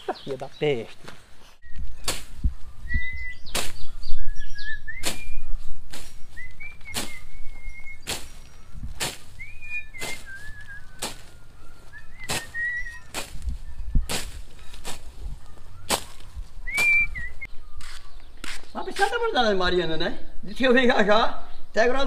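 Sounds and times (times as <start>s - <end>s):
blade chopping through brush: 2.0s - 2.4s, 3.4s - 3.9s, 5.0s - 11.4s, 12.1s - 15.2s, 15.9s - 17.1s
man whistling a tune: 9.4s - 13.1s, 16.7s - 17.3s.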